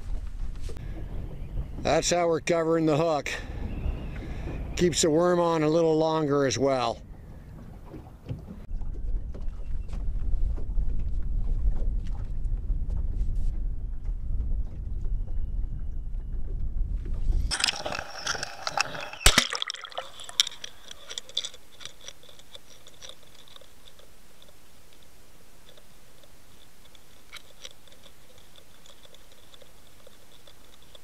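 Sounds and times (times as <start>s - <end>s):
wind buffeting microphone: 0.0s - 19.2s
water splashing and bubbling: 17.5s - 24.6s.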